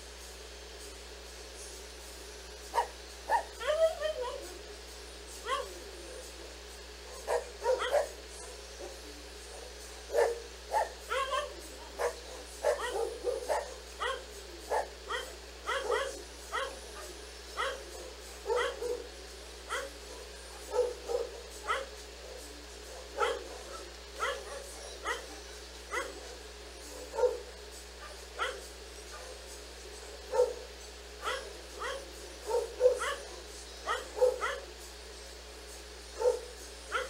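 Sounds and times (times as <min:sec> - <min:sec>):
dog barking: 0:02.7 - 0:04.5, 0:05.4 - 0:05.8, 0:07.1 - 0:09.0, 0:09.6 - 0:19.1, 0:19.7 - 0:29.4, 0:30.2 - 0:34.7, 0:36.2 - 0:37.0.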